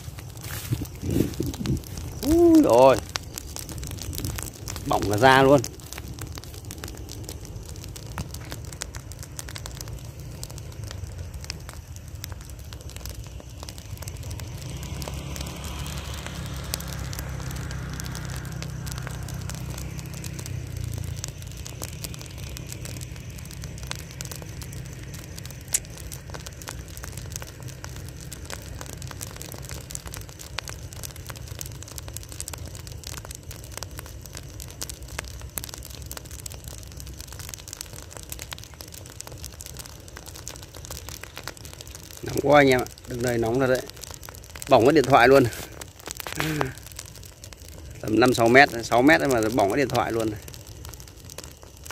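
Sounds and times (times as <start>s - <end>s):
low rumble: 0.0s - 31.6s
burning straw crackling: 0.0s - 51.9s.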